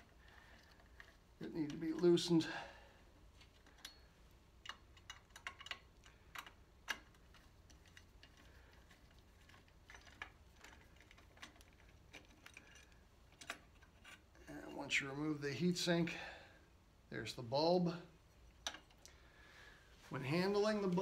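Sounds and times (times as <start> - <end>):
screwdriver clicking on metal screws: 3.4 - 14.2.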